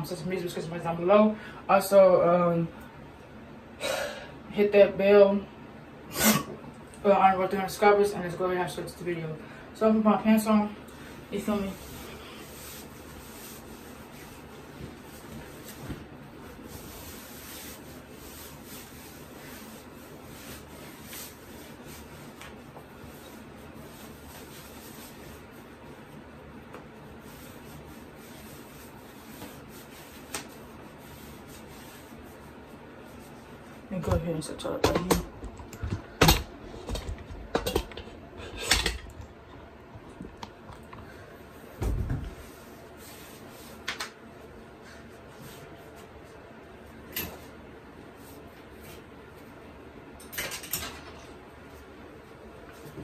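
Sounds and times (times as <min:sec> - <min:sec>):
low steady hum: 0:00.0 - 0:53.0
clothing rustling: 0:10.3 - 0:26.3.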